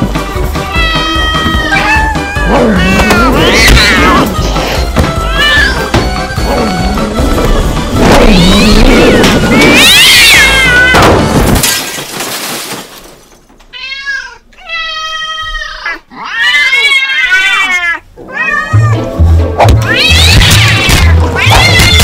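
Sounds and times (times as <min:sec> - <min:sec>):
cat meowing: 0:00.7 - 0:04.5, 0:05.2 - 0:05.9, 0:08.1 - 0:11.0, 0:13.8 - 0:19.0, 0:19.8 - 0:22.0
loud music: 0:01.7 - 0:09.9.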